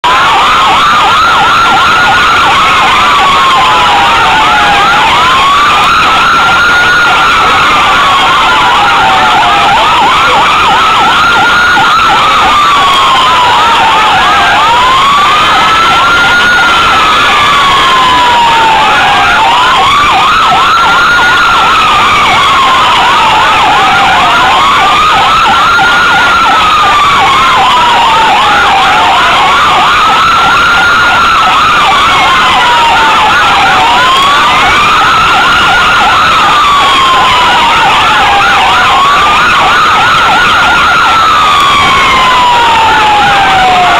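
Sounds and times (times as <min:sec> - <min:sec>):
police siren wailing: 0:00.0 - 0:43.9
police siren yelping: 0:00.0 - 0:43.9.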